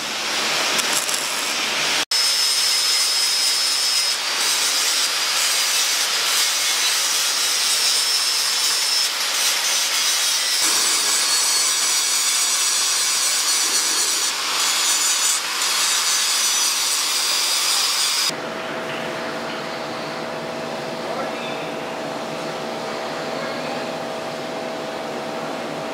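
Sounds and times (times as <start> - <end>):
angle grinder grinding metal: 0.0 - 18.3.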